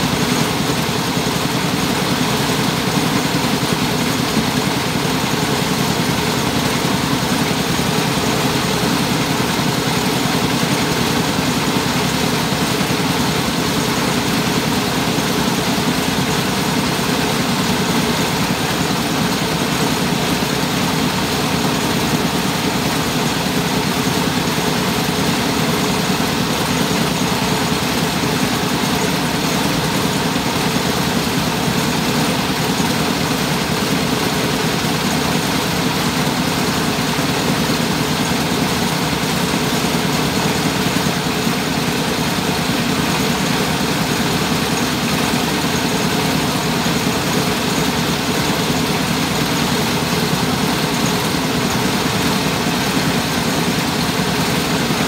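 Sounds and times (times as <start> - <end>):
rice huller engine running: 0.0 - 55.0.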